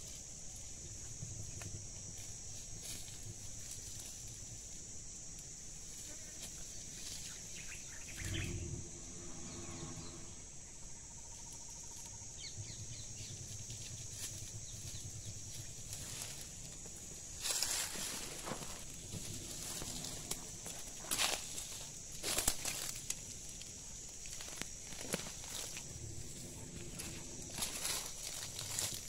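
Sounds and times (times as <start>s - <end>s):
high-pitched insect drone: 0.0s - 29.0s
brief low hum: 8.0s - 10.6s
twigs and leaves crackling: 13.8s - 29.0s.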